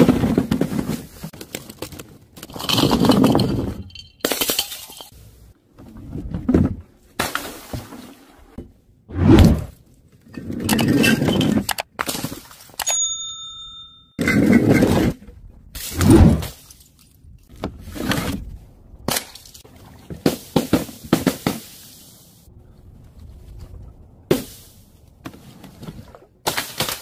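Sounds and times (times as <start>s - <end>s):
short ringing ding: 12.8s - 14.2s.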